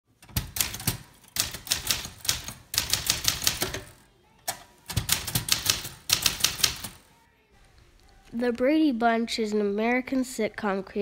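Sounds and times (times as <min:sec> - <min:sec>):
typewriter keys clacking: 0:00.2 - 0:07.0.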